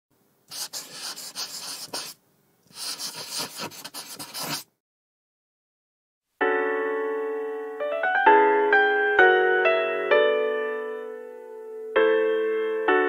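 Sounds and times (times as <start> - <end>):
pen scratching on paper: 0.5 - 4.7
soft piano chord: 6.4 - 13.0.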